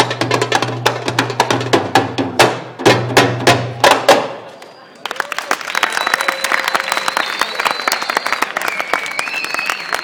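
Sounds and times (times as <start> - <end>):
audience applauding: 5.0 - 10.0
shrill whistles: 5.7 - 10.0.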